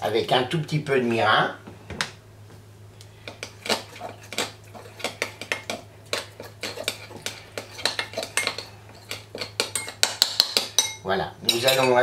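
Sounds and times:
spoon scraping glass bowl: 3.3 - 10.0.

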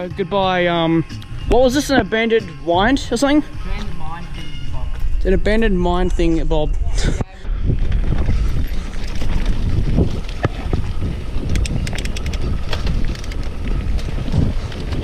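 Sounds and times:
bike rumbling and rattling: 0.0 - 15.0
wind buffeting microphone: 1.0 - 15.0.

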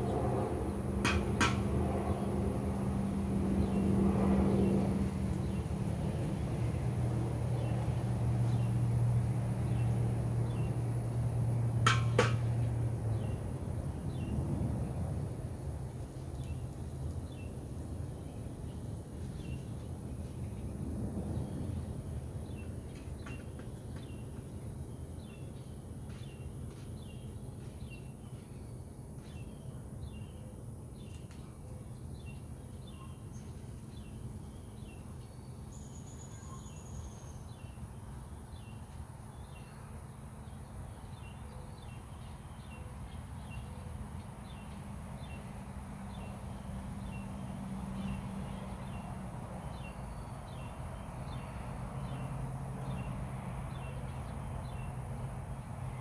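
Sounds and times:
steady low rumble: 0.0 - 23.0.

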